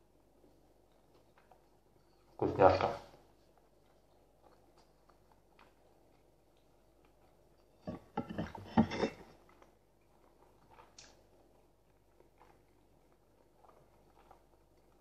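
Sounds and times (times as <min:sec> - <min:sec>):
mug clattering: 0:07.9 - 0:09.3
mouth clicks of chewing: 0:09.4 - 0:15.0.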